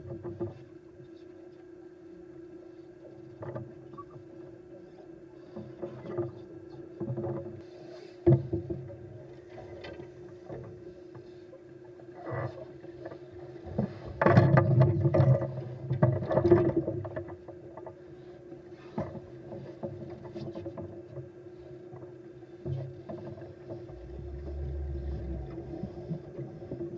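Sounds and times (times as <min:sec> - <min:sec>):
steady underwater hum: 0:00.0 - 0:26.9
low rumble: 0:23.9 - 0:26.9.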